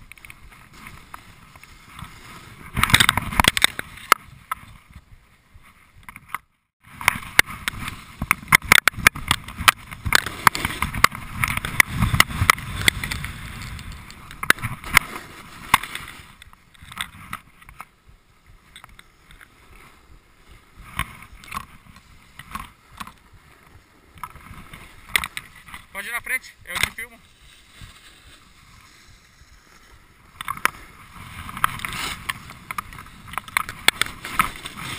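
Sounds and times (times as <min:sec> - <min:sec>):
snowboard scraping on snow: 0:00.4 - 0:05.6, 0:06.9 - 0:08.5, 0:09.5 - 0:16.4, 0:27.1 - 0:34.9.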